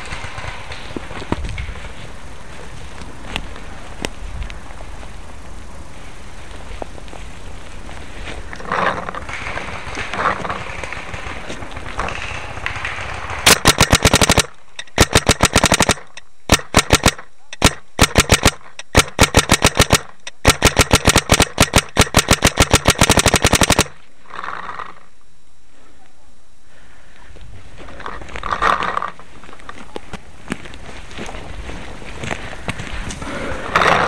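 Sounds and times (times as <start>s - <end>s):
paintball marker firing: 9.3s - 24.0s.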